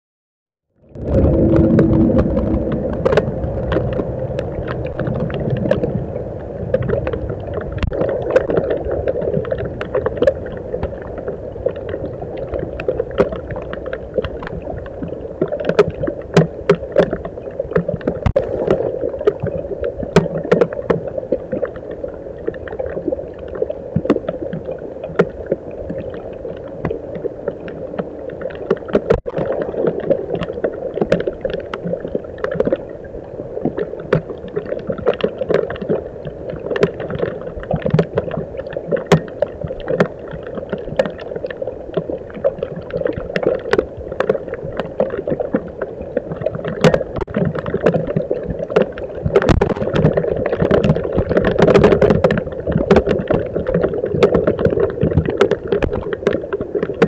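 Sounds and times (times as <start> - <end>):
steady hum: 0.8 - 15.4
raindrops tapping on camera: 0.9 - 6.1, 33.6 - 57.0.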